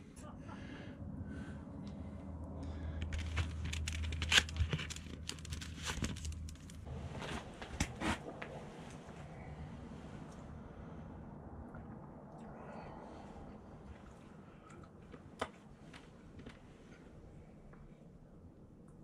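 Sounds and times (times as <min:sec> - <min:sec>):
low steady rumble: 0:00.0 - 0:19.0
crinkling handling noise: 0:02.9 - 0:09.2.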